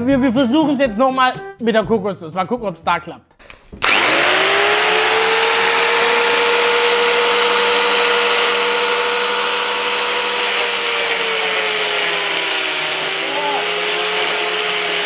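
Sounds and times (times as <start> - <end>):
angle grinder whining: 3.8 - 15.0.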